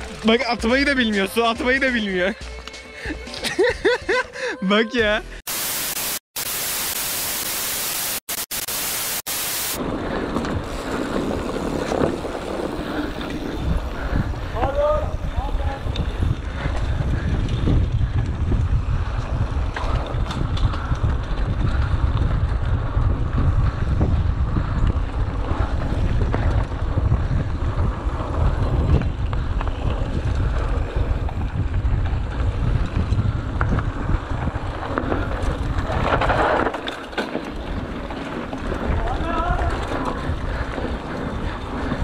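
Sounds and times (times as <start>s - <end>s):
tyres rolling over dirt trail: 0.0s - 3.9s, 9.8s - 42.0s
bike clattering over bumps: 9.8s - 42.0s
wind buffeting microphone: 9.8s - 42.0s.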